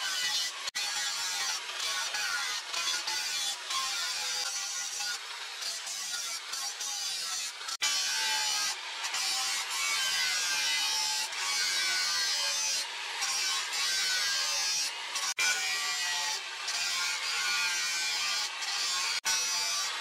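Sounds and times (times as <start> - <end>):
angle grinder grinding steel: 0.0 - 20.0.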